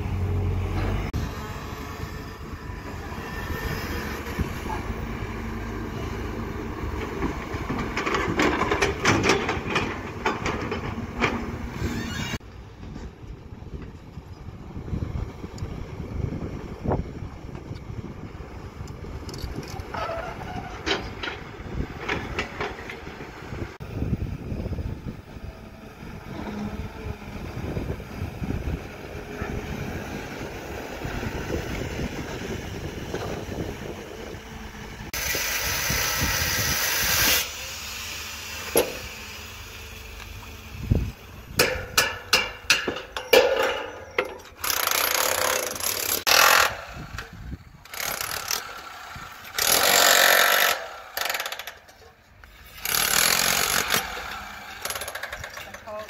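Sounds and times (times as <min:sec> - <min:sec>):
excavator diesel engine rumble: 0:00.0 - 0:47.9
engine knocks: 0:06.6 - 0:11.9
power hammer chipping concrete: 0:47.9 - 0:52.0, 0:52.8 - 0:56.0.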